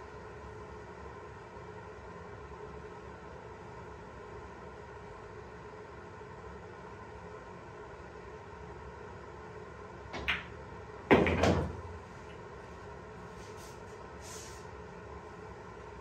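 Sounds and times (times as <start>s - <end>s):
cue tip striking cue ball: 10.2s - 12.0s
billiard balls colliding: 10.2s - 12.1s.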